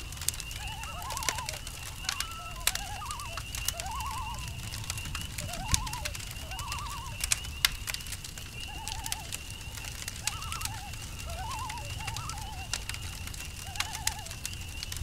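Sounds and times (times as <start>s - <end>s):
campfire crackling and popping: 0.0s - 15.0s
cricket trill: 0.0s - 15.0s
warbling animal calls: 0.0s - 15.0s.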